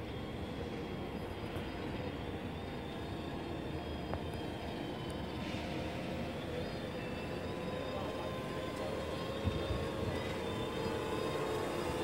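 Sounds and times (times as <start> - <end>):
quadcopter drone hovering: 6.2 - 12.0.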